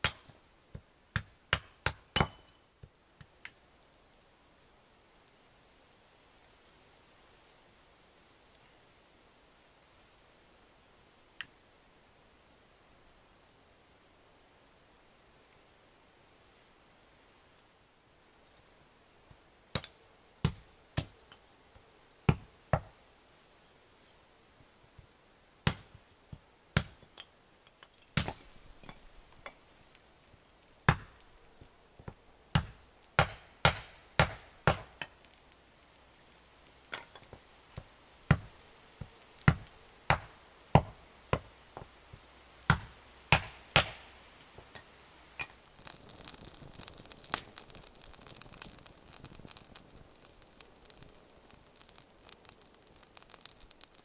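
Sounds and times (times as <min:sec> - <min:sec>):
wood fire crackling: 0:00.0 - 0:54.0.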